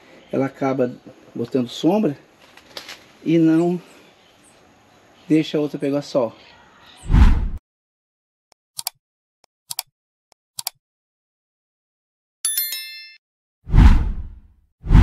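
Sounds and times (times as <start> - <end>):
loud whooshes: 7.0 - 7.6, 13.7 - 15.0
bright chime: 12.5 - 13.2.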